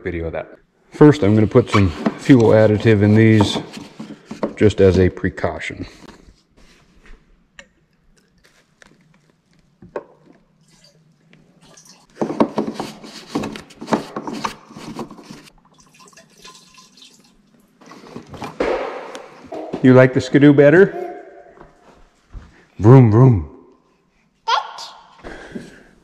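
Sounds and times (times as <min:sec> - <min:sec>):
liquid trickling: 0:10.5 - 0:12.1, 0:15.5 - 0:18.1.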